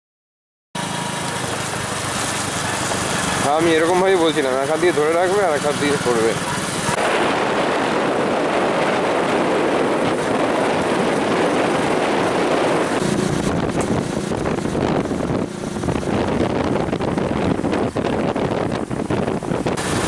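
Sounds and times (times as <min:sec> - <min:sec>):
moving vehicle road noise: 0:00.8 - 0:20.0
wind on microphone: 0:02.4 - 0:20.0
deep rumble: 0:06.4 - 0:20.0.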